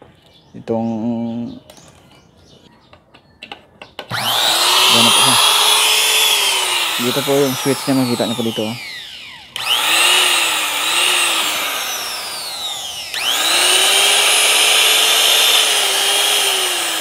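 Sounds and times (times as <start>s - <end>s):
trim router motor whine: 4.1s - 17.0s.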